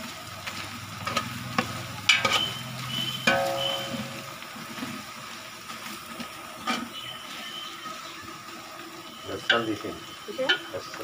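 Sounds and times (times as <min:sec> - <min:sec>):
onions and spices sizzling in pot: 0:00.0 - 0:11.0
ladle clinking against pot: 0:02.1 - 0:02.6, 0:03.3 - 0:04.2.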